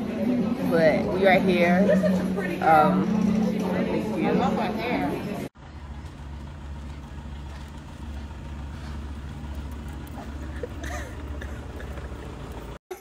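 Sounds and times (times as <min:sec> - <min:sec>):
steady low rumble: 0:05.5 - 0:12.8.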